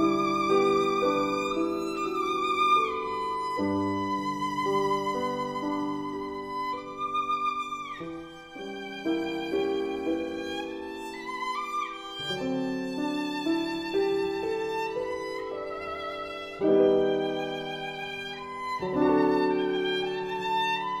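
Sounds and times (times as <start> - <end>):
violin playing slow melody: 0.0 - 21.0.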